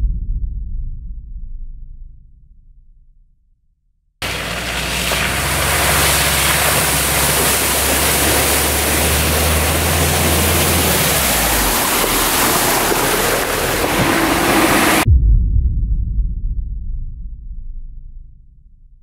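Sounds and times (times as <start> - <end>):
engine droning: 4.2 - 15.1
loud rushing noise: 4.2 - 15.1.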